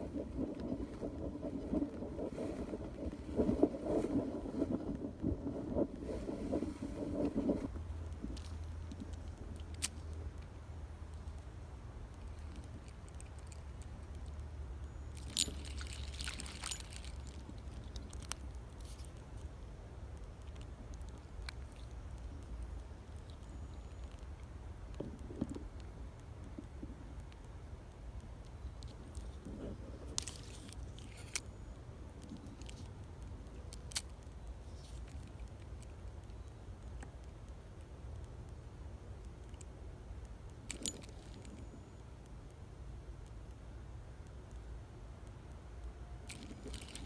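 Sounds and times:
steady low rumble: 0:00.0 - 0:47.0
fishing reel clicking and rattling: 0:15.2 - 0:18.4.

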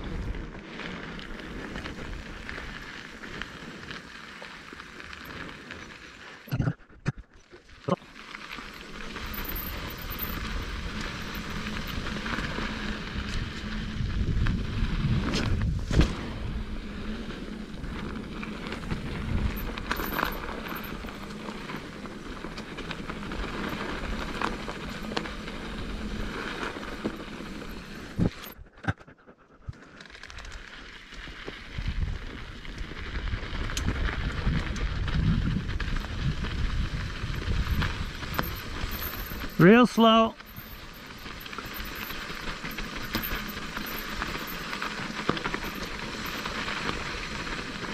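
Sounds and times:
bike tyres rolling on dirt: 0:00.0 - 0:06.5, 0:07.3 - 0:28.7, 0:29.8 - 0:47.9
chain and frame rattling: 0:08.5 - 0:12.0, 0:18.6 - 0:27.0, 0:37.2 - 0:47.0.

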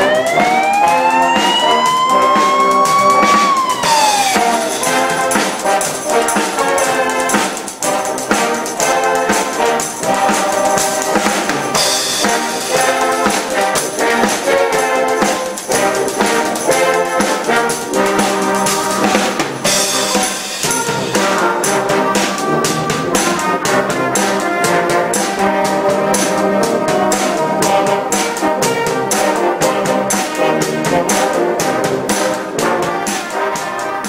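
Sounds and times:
siren wail: 0:00.0 - 0:05.4
brass music: 0:00.0 - 0:34.0
drum kit beat: 0:00.0 - 0:34.0.

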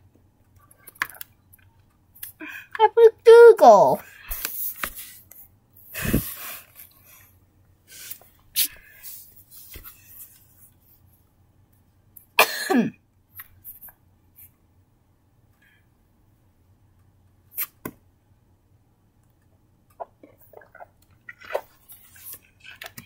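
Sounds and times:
small clicks and rustles: 0:00.0 - 0:02.4
person coughing: 0:12.4 - 0:13.0.

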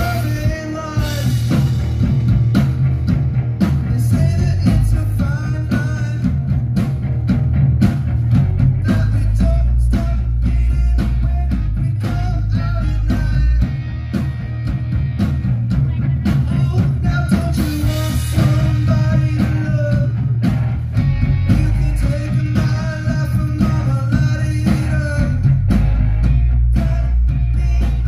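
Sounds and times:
person singing lead vocal: 0:00.0 - 0:01.6, 0:03.8 - 0:06.4, 0:08.8 - 0:14.0, 0:15.8 - 0:20.4, 0:21.4 - 0:25.8, 0:26.5 - 0:28.0
bass guitar: 0:00.0 - 0:28.0
distorted electric guitars: 0:00.0 - 0:28.0
drums: 0:00.0 - 0:28.0.

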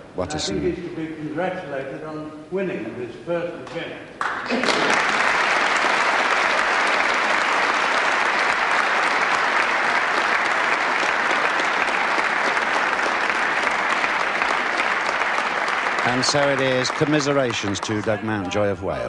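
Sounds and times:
audience applauding: 0:04.2 - 0:19.0.

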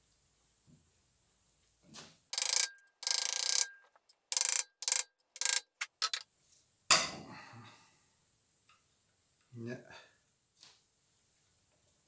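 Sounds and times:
pliers rasping on metal: 0:02.4 - 0:06.2.

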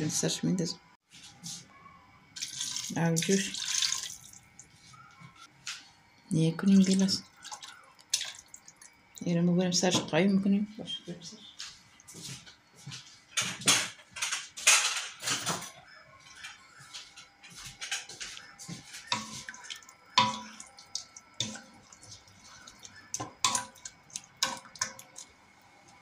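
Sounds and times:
wooden spoon stirring in pot: 0:17.9 - 0:26.0
spoon knocking on steel pot: 0:20.2 - 0:20.6.

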